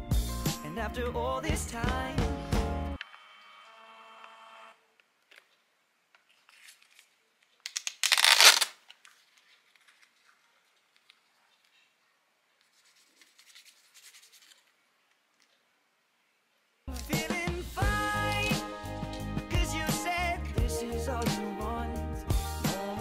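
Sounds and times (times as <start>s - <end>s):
paper rustling: 6.2s - 15.6s
paper strip tearing: 7.7s - 10.4s.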